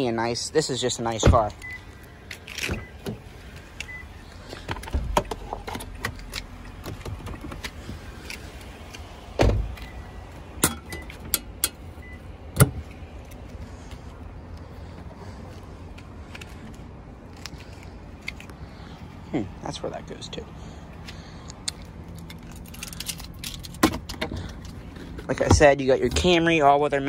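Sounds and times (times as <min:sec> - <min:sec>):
car door shutting: 0:04.6 - 0:08.4, 0:09.3 - 0:10.0, 0:12.5 - 0:12.9.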